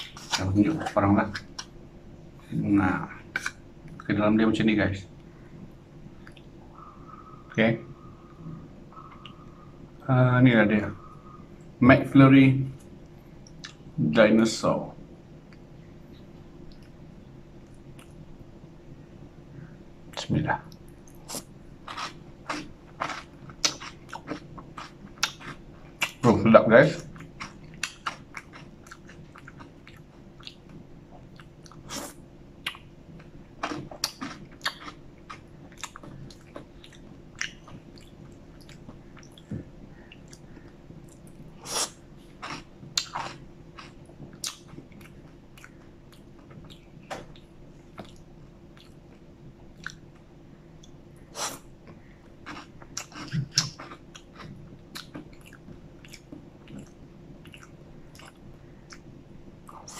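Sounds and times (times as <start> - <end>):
faint low hum: 0.0 - 59.9
wet lip smacks and chewing: 49.8 - 50.2.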